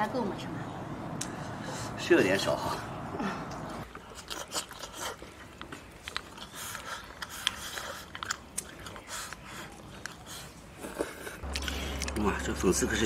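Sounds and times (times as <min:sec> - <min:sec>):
slurping and chewing noodles: 0:03.8 - 0:12.4.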